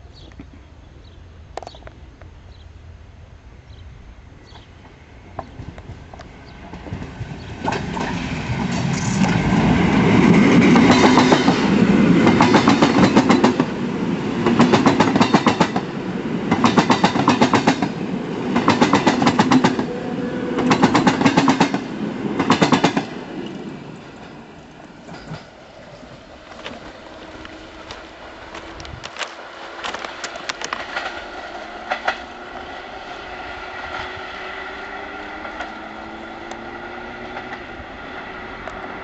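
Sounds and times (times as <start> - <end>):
train wheels clattering: 4.5 - 32.4.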